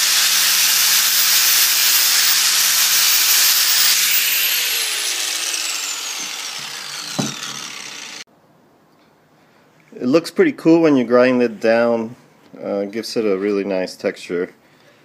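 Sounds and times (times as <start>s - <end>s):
angle grinder grinding metal: 0.0s - 8.3s
grinder motor winding down: 0.0s - 8.3s.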